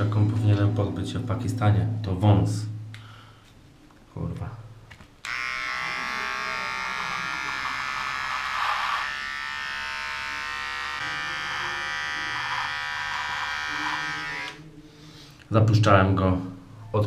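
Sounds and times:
electric shaver buzzing: 5.2 - 14.6.

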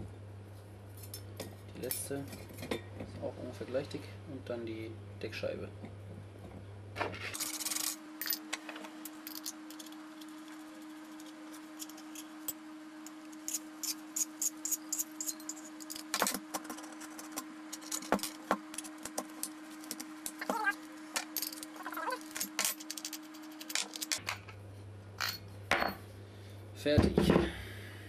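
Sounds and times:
faint steady hum: 0.0 - 28.0
metal parts clicking and clinking: 9.1 - 10.0, 13.5 - 19.0, 19.8 - 24.5.

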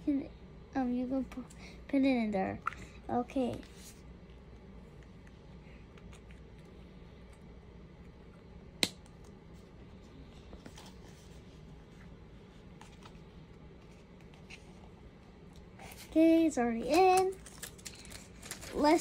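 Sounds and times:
plastic toy pieces rustling: 16.9 - 19.0.

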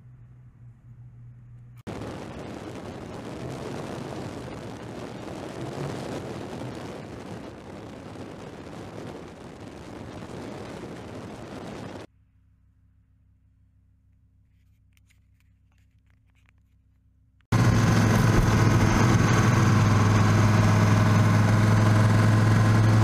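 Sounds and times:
car engine tyre and wind noise: 0.0 - 12.1, 17.5 - 23.0.

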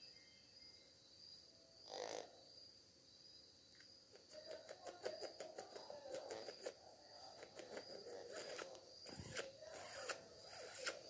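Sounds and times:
soft low bird sounds: 0.0 - 11.0
fingers scratching feathers: 4.2 - 11.0.

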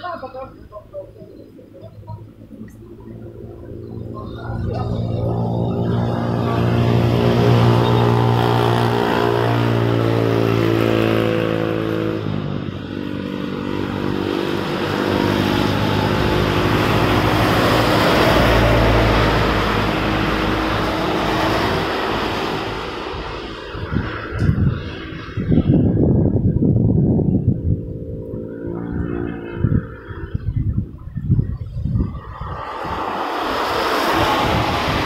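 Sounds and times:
truck passing on wet road: 5.2 - 25.0, 32.3 - 35.0.

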